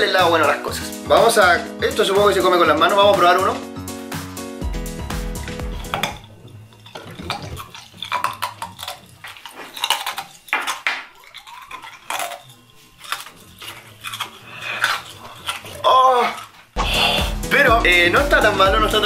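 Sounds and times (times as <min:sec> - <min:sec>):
ice crunched between teeth: 0:05.9 - 0:16.6.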